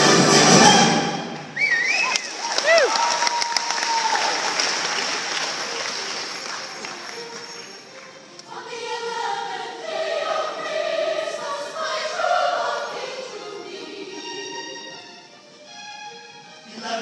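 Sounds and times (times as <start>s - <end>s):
large choir singing with orchestra: 0.0s - 1.6s, 5.3s - 15.2s
applause: 1.9s - 8.2s.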